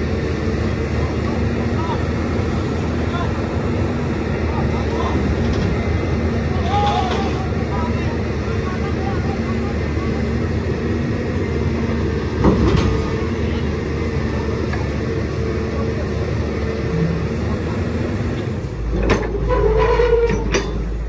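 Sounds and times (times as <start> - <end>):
excavator diesel engine running: 0.0 - 21.0
metallic clank: 18.9 - 21.0.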